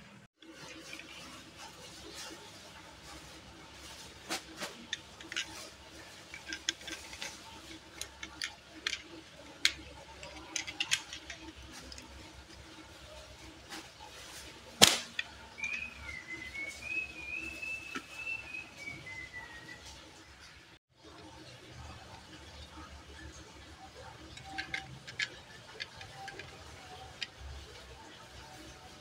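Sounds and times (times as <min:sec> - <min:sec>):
toy car clicks and taps: 0:06.3 - 0:12.2, 0:23.9 - 0:27.6
sharp loud click: 0:14.8 - 0:15.3.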